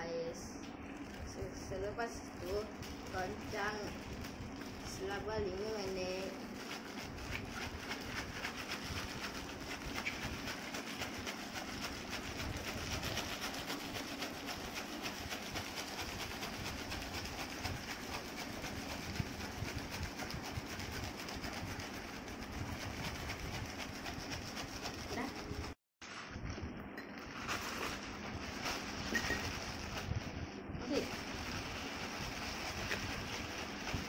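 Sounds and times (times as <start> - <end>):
ice cubes rattling in a bag: 27.2 - 30.2.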